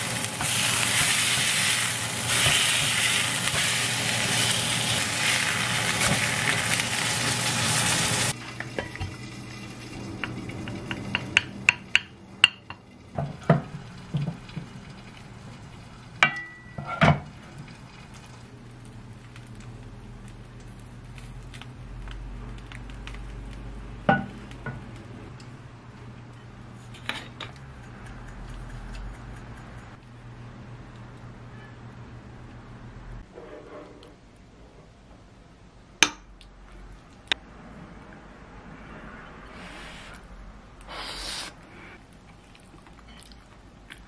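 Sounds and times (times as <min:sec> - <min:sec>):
fish sizzling in a frying pan: 0:00.0 - 0:08.4.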